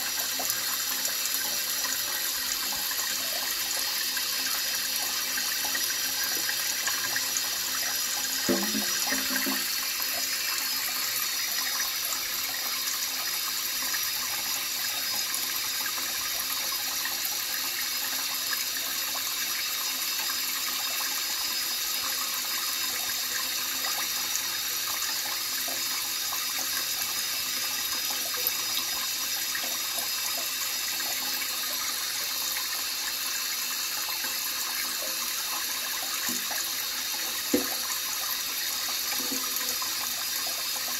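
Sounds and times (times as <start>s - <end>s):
tap running into sink: 0.1s - 12.1s, 34.2s - 40.9s.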